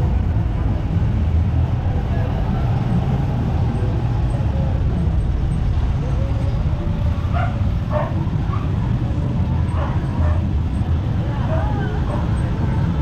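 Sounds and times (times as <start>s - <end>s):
dog barking: 7.3s - 8.8s, 9.7s - 10.5s.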